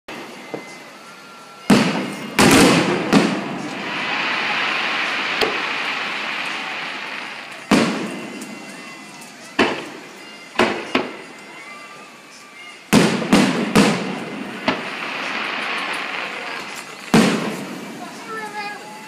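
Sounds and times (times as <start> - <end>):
fireworks bangs: 1.6 - 11.9, 12.6 - 19.0
steady hiss: 13.5 - 19.0.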